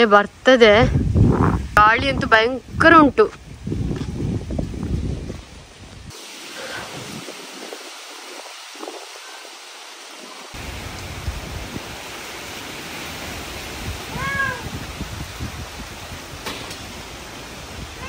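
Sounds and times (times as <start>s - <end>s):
strong wind on microphone: 0.3s - 9.6s, 10.5s - 18.0s
cat meowing: 14.1s - 14.7s.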